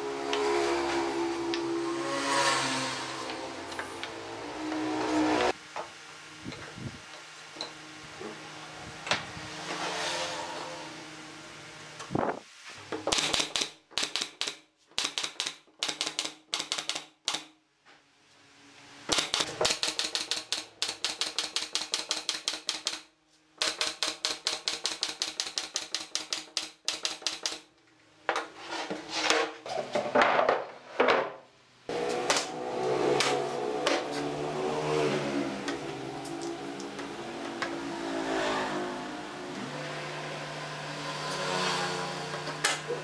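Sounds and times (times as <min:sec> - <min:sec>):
nail gun firing into wood: 0:13.0 - 0:17.5, 0:19.1 - 0:27.6.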